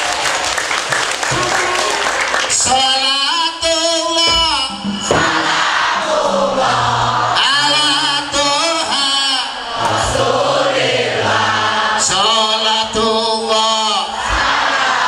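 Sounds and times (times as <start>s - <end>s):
man singing through a pa system: 2.5s - 5.3s, 6.0s - 10.2s, 11.8s - 14.2s.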